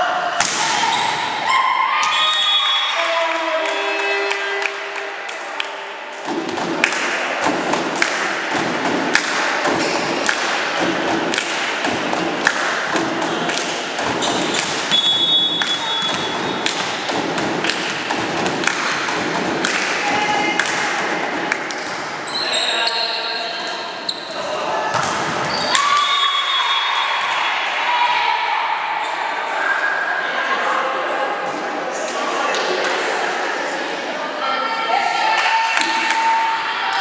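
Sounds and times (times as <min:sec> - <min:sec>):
spectators thumping a beat: 0:06.2 - 0:22.3
crowd murmur: 0:28.5 - 0:37.0.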